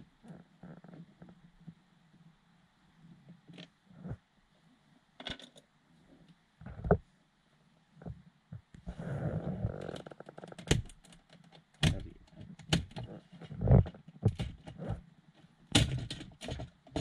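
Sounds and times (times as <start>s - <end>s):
clicks and knocks of plastic trim: 10.0s - 13.1s, 13.7s - 14.8s, 15.7s - 17.0s.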